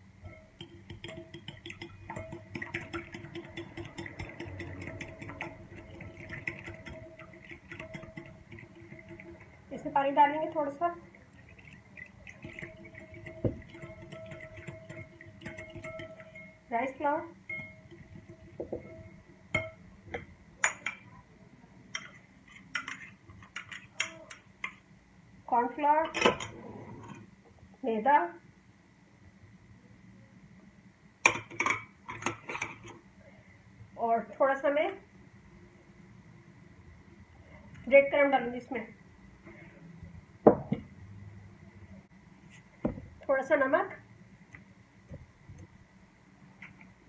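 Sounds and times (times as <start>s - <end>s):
whisk clicking against glass bowl: 0.2s - 16.6s, 17.5s - 21.0s
bowls clinking against glass: 12.3s - 16.7s, 17.5s - 21.1s.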